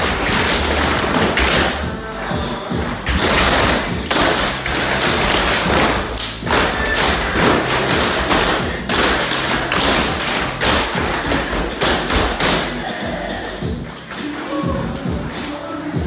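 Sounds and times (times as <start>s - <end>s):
tap shoes on wooden floor: 0.0s - 12.7s.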